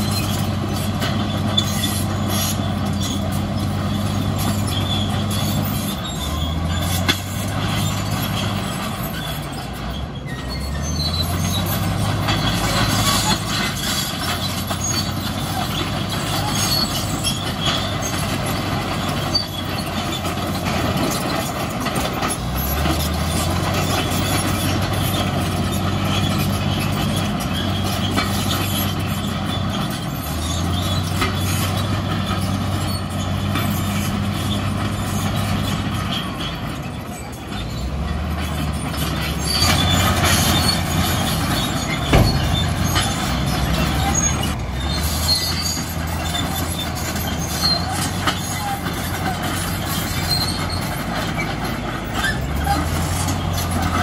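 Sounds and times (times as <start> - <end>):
diesel engine under load: 0.0 - 54.0
steel tracks clanking and squealing: 0.0 - 54.0.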